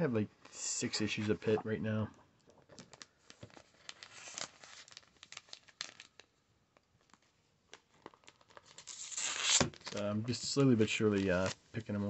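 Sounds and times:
plastic bag rustling and crinkling: 0:02.8 - 0:06.3.

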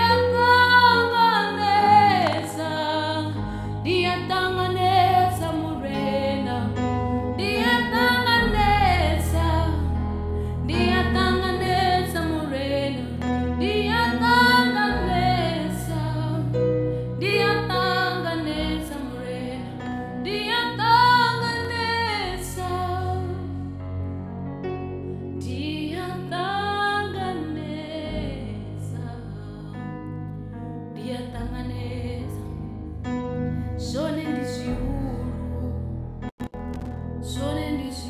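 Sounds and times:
backing music: 0:00.0 - 0:04.2
woman singing into a microphone: 0:00.0 - 0:23.7, 0:25.4 - 0:30.2, 0:30.9 - 0:32.8, 0:33.5 - 0:36.0, 0:37.2 - 0:38.0
long held bass notes: 0:00.0 - 0:26.3, 0:34.7 - 0:37.7.

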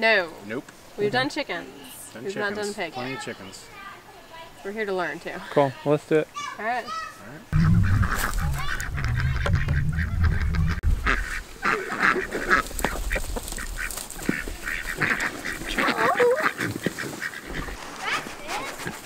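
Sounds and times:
ducks quacking: 0:07.6 - 0:19.0.

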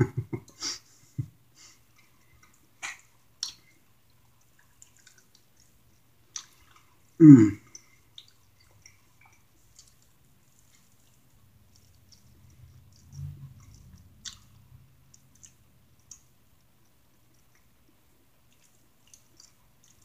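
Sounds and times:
wet mouth clicks and smacks: 0:02.0 - 0:03.8, 0:04.4 - 0:06.9, 0:07.7 - 0:20.0
person humming mm: 0:07.2 - 0:07.6.

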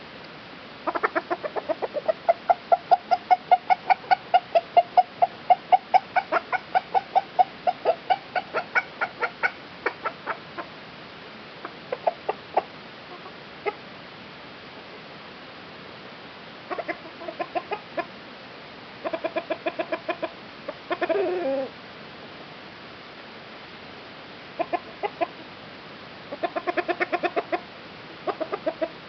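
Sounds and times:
chicken clucking: 0:00.8 - 0:10.7, 0:11.6 - 0:13.8, 0:16.7 - 0:18.1, 0:19.0 - 0:21.7, 0:24.6 - 0:25.5, 0:26.3 - 0:29.0.

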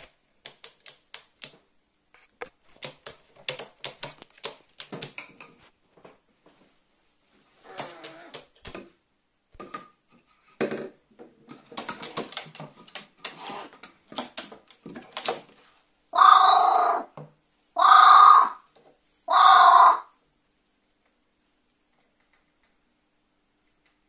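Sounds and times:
crow cawing: 0:16.2 - 0:17.0, 0:17.8 - 0:18.6, 0:19.3 - 0:20.1.

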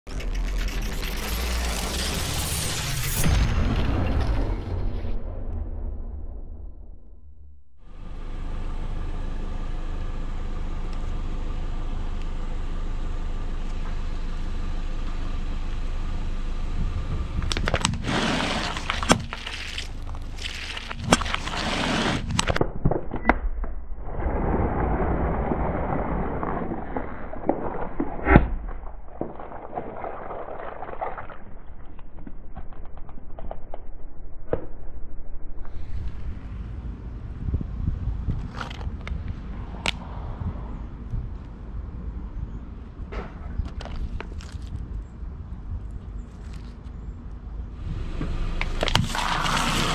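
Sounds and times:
car engine hum: 0:07.8 - 0:22.6, 0:36.1 - 0:49.9
tyres crunching objects: 0:17.5 - 0:22.7, 0:24.4 - 0:33.7, 0:43.1 - 0:45.0, 0:48.6 - 0:49.9.

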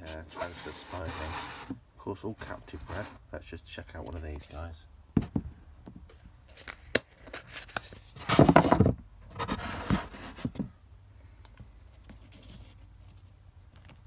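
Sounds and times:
plastic pot scratching and scraping: 0:00.0 - 0:01.8, 0:02.4 - 0:03.2, 0:07.4 - 0:10.5.

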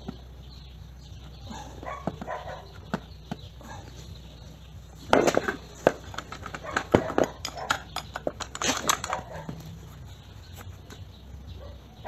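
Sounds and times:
spanner clicking on metal nut: 0:06.1 - 0:09.3.

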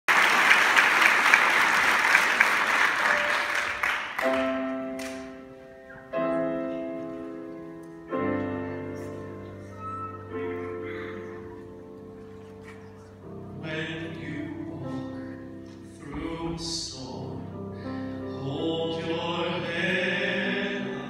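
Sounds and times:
audience applause: 0:00.0 - 0:05.2
piano chords ringing: 0:02.9 - 0:21.0.

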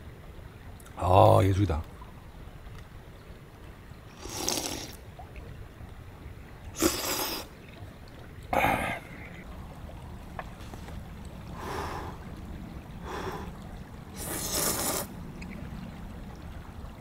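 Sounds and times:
person slurping noodles: 0:04.2 - 0:05.0, 0:06.8 - 0:07.5, 0:14.2 - 0:15.1
low background rumble: 0:07.5 - 0:17.0.

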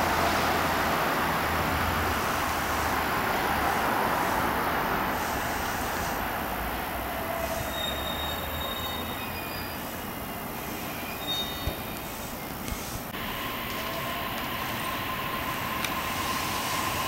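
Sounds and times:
train wheels rushing on rail: 0:00.0 - 0:17.0
thin high squeal: 0:07.2 - 0:12.5.

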